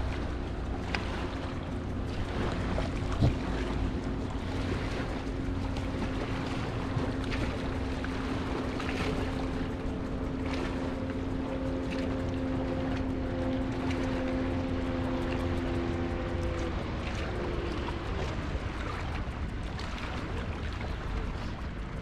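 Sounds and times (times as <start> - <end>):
distant motorboat engine drone: 0.0 - 22.0
small waves lapping: 0.0 - 22.0
wind rumbling on microphone: 0.0 - 22.0.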